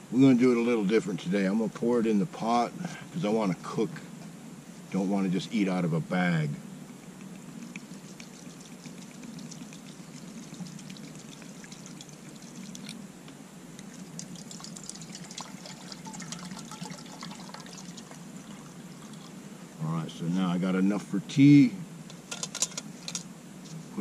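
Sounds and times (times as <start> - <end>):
water pouring into a pot: 8.3 - 12.9, 14.0 - 19.2.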